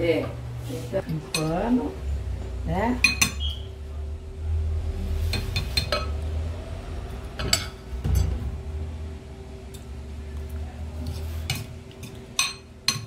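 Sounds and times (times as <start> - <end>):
low hum: 0.4 - 12.8
fork clinking against ceramic bowl: 11.5 - 13.0.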